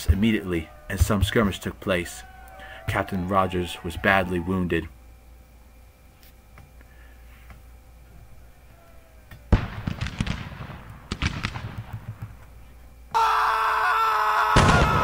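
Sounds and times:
gunshots echoing: 0:09.5 - 0:12.2.

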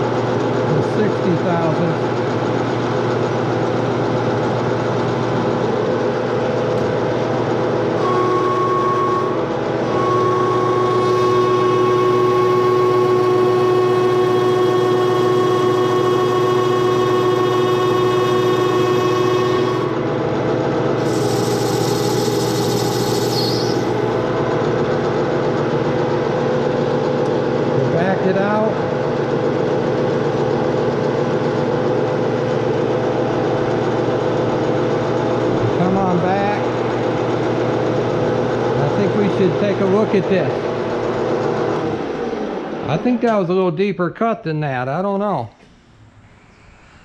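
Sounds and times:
lathe motor hum: 0:00.0 - 0:43.7
cutting tool whine: 0:07.7 - 0:20.2, 0:20.8 - 0:25.2.

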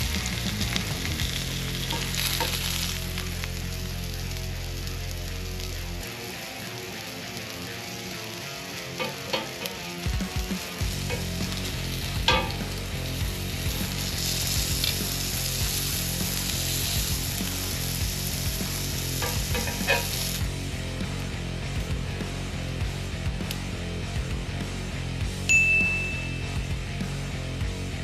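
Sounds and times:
oil sizzling in a skillet: 0:00.0 - 0:23.6
metal tongs clicking on pan: 0:08.9 - 0:10.0, 0:12.3 - 0:12.7, 0:19.2 - 0:20.2.

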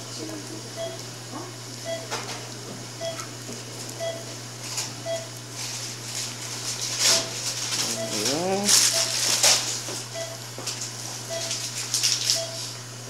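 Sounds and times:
steady electrical hum: 0:00.0 - 0:13.0
patient monitor beeping: 0:00.8 - 0:01.0, 0:01.8 - 0:02.2, 0:03.0 - 0:03.3, 0:04.0 - 0:04.3, 0:05.0 - 0:05.4, 0:07.9 - 0:09.2, 0:10.1 - 0:10.4, 0:11.3 - 0:11.6, 0:12.3 - 0:12.7.

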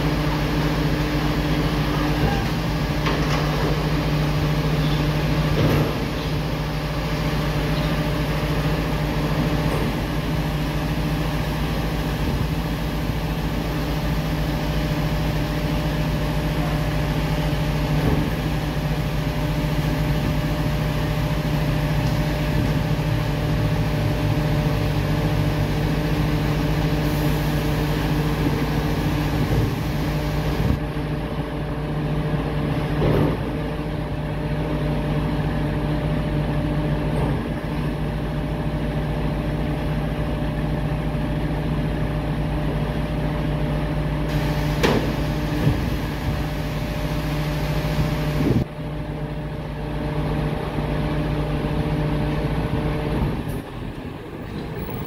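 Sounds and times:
diesel truck engine running: 0:00.0 - 0:55.0
clanks from truck body: 0:02.2 - 0:03.9, 0:04.8 - 0:06.3, 0:32.8 - 0:33.6, 0:37.1 - 0:38.0, 0:44.8 - 0:45.8.

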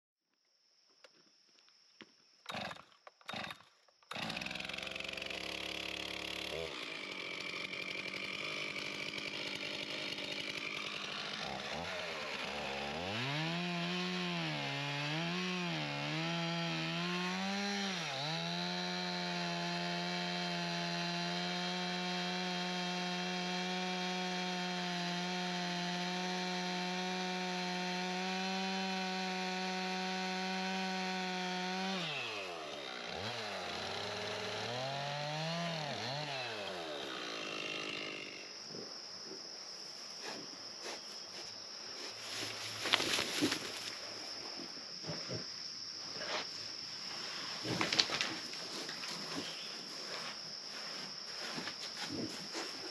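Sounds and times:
chainsaw engine revving: 0:02.5 - 0:38.5
chainsaw cutting log: 0:02.5 - 0:38.6, 0:42.2 - 0:44.4.

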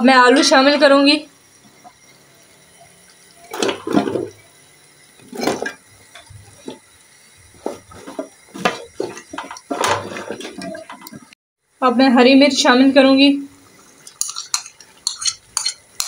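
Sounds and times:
spatula stirring wet food: 0:05.2 - 0:11.4, 0:13.8 - 0:16.0.

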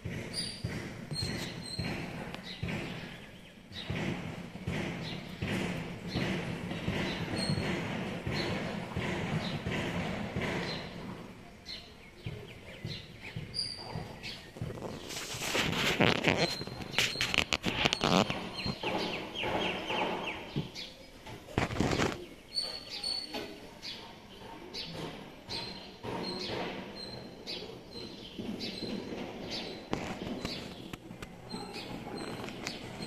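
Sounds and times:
small birds chirping: 0:00.0 - 0:33.0
kittens scuffling on wooden floor: 0:13.5 - 0:18.9.

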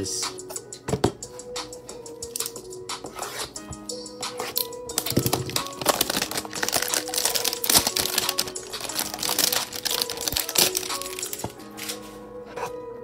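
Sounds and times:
plastic shrink-wrap crinkling: 0:04.6 - 0:11.5.

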